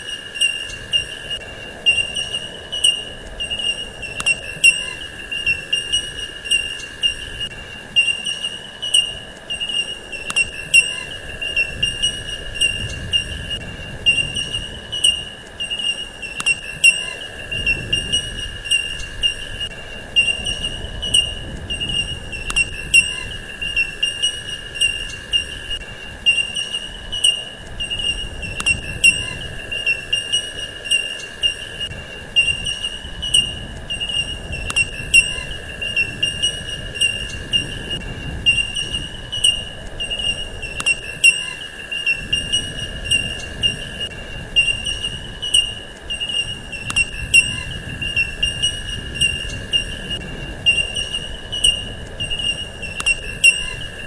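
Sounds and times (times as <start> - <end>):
insect-like chirring drone: 0.0 - 54.0
faint tick: 26.4 - 28.8.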